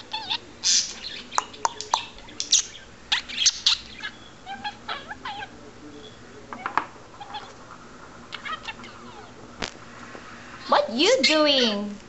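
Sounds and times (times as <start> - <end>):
budgerigar chirping and warbling: 0.0 - 5.5, 7.2 - 7.6.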